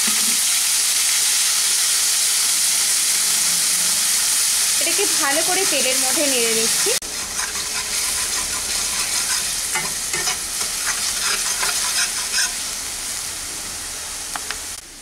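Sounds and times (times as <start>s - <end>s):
onion paste sizzling in hot oil: 0.0s - 15.0s
spatula scraping and tapping pan: 6.7s - 12.6s.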